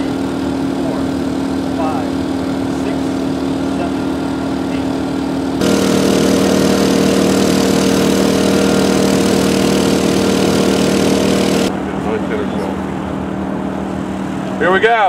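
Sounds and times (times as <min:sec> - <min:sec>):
small engine running: 0:00.0 - 0:12.7.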